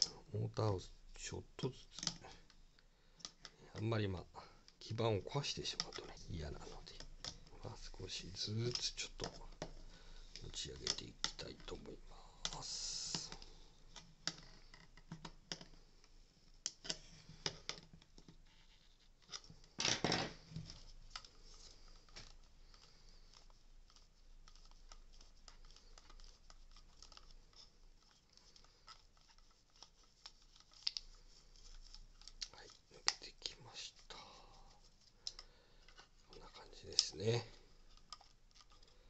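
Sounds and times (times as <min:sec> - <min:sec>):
plastic clicks and scrapes: 0:20.4 - 0:33.4, 0:35.2 - 0:39.0.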